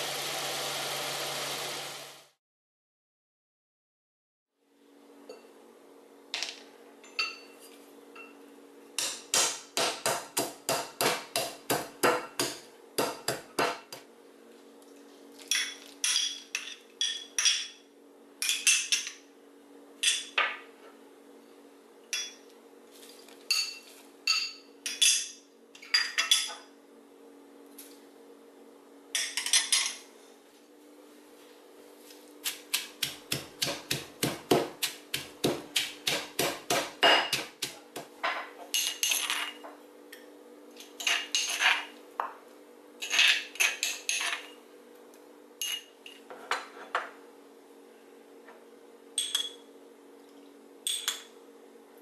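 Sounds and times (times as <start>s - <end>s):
stone pestle pounding in mortar: 9.0s - 14.0s, 32.4s - 38.1s.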